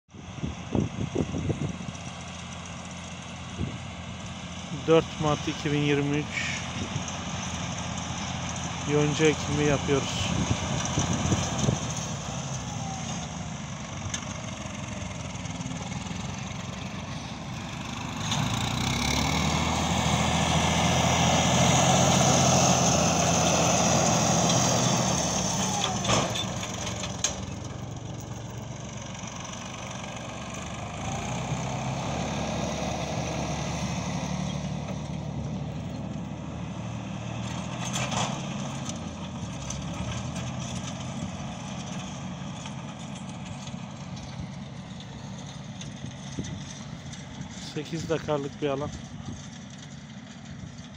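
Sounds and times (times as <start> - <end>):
tractor diesel engine running: 0.1 - 50.9.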